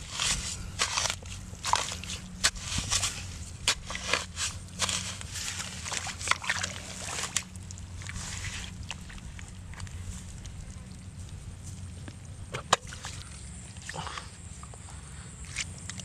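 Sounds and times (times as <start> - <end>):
hands sloshing in muddy water: 0.0 - 11.9, 12.6 - 14.4.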